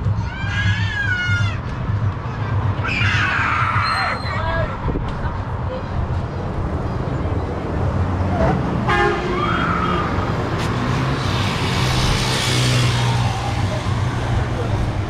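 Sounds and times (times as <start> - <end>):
road traffic passing: 0.0 - 15.0
vehicle passing loudly: 6.0 - 15.0
vehicle horn tooting: 8.8 - 9.4.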